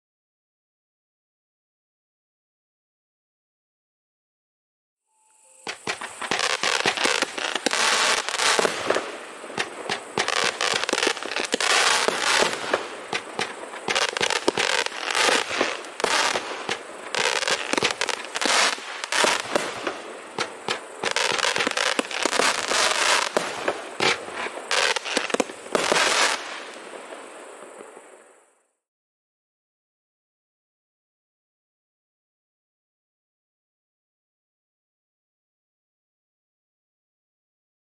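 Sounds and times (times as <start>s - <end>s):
firework shell bursts: 5.6s - 26.5s
firework crackling: 5.6s - 28.4s
firework launch thumps: 5.7s - 16.8s.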